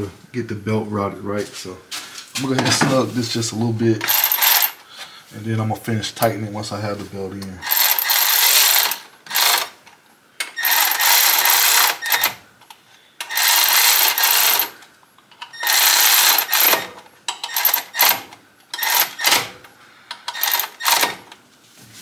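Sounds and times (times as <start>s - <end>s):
ratchet wrench clicking: 4.0s - 4.8s, 7.6s - 9.7s, 10.6s - 12.4s, 13.2s - 14.8s, 15.6s - 19.5s, 20.2s - 21.2s.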